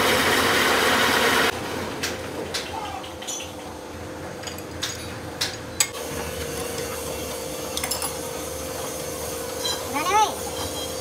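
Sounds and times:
steady machine hum: 0.0s - 11.0s
spanner clinking on steel bolts: 3.1s - 3.7s, 4.4s - 6.0s, 7.7s - 8.3s.

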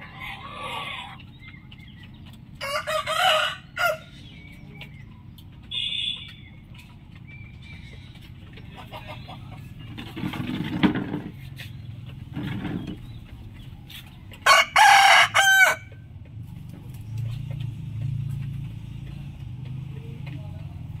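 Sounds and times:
rooster crowing: 2.6s - 4.1s, 14.4s - 15.9s.

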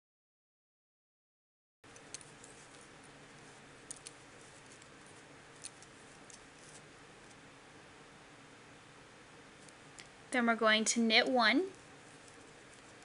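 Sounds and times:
low steady hiss: 1.8s - 13.0s
knitting needles clicking: 1.9s - 2.8s, 3.8s - 5.0s, 5.6s - 7.4s.

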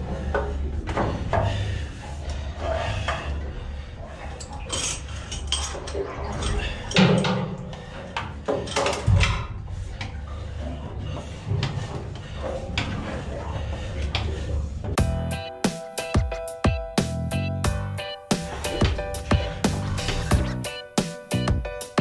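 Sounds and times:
metal clanks and knocks: 4.4s - 7.8s, 8.4s - 9.6s.

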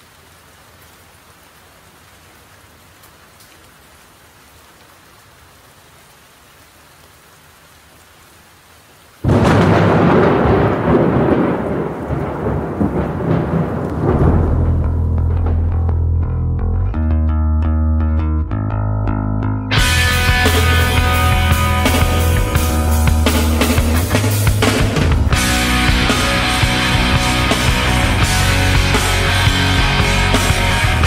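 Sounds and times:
steady rain hissing: 0.0s - 16.0s, 19.7s - 31.0s
thunderclap with long rumble: 9.2s - 16.4s.

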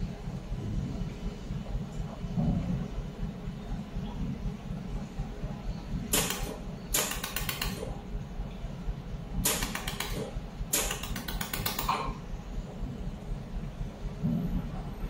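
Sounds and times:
steady low hum: 0.0s - 15.0s
laser welder rapid ticking: 6.1s - 7.9s, 9.4s - 12.2s.

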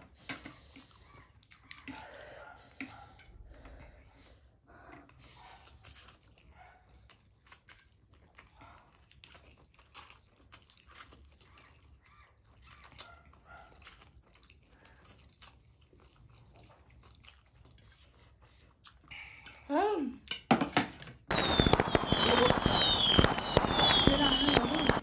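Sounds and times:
person chewing food: 0.0s - 19.7s.

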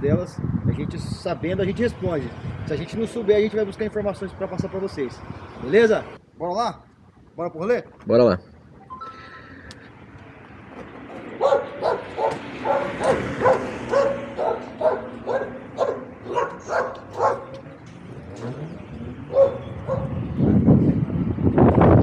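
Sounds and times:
dog barking: 11.4s - 17.6s, 19.3s - 20.2s.

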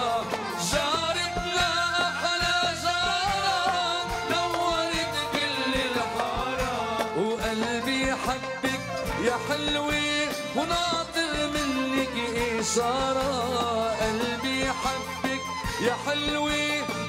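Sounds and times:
live band playing: 0.0s - 17.0s
steady drum beat: 0.0s - 17.0s.

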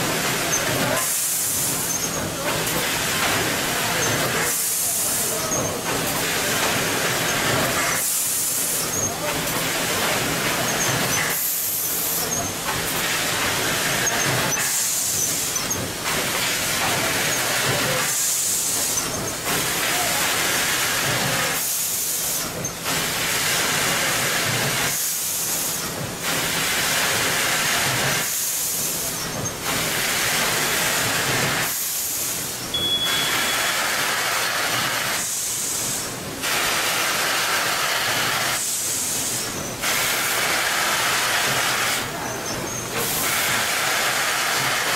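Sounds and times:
packaging machine running: 0.0s - 44.9s
compressed air hiss: 33.2s - 42.1s, 43.0s - 44.9s.

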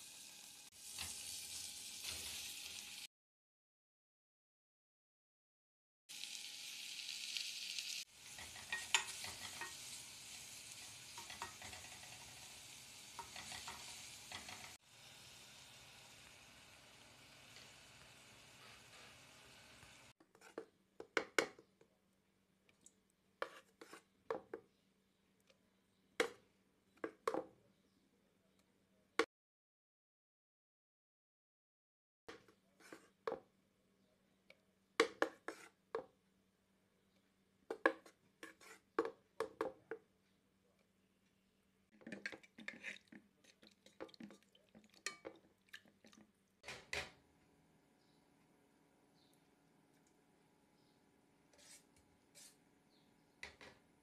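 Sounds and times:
pot simmering hiss: 6.1s - 20.2s
metal spoon scraping saucepan: 8.2s - 9.9s, 38.0s - 38.8s, 42.0s - 44.3s, 51.5s - 53.0s.

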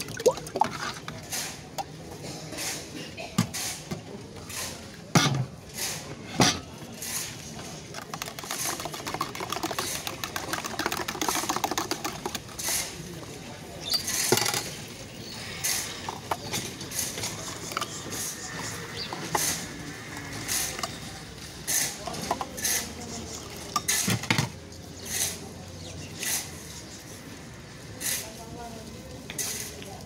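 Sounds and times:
juice pouring: 0.0s - 1.3s
whisk rattling in metal mug: 7.9s - 12.8s.

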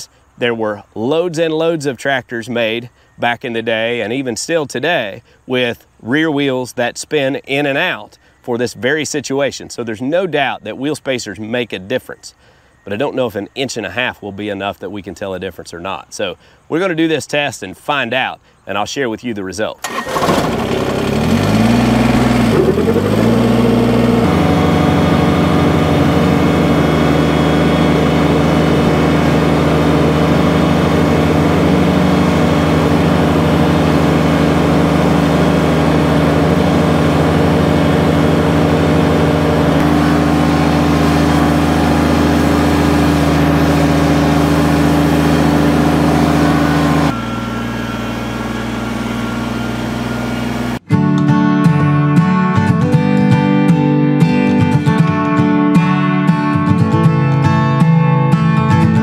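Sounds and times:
tractor diesel engine: 19.8s - 50.9s.

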